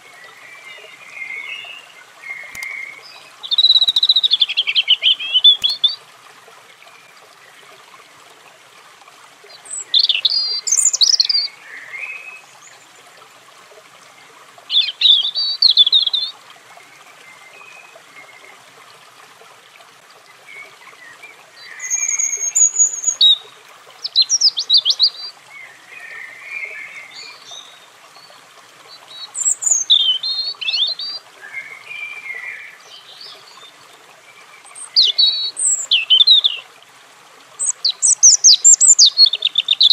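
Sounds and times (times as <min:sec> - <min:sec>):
robin singing: 0:00.1 - 0:06.0, 0:09.5 - 0:12.8, 0:14.7 - 0:16.3, 0:20.5 - 0:28.3, 0:28.9 - 0:33.8, 0:34.4 - 0:36.7, 0:37.6 - 0:39.9.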